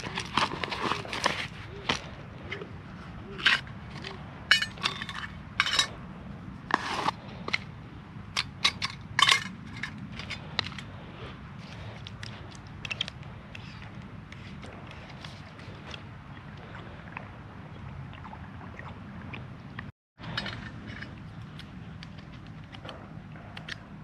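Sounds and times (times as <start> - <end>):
metal camping gear clinking: 3.3 - 6.0, 8.3 - 10.9, 20.2 - 23.0.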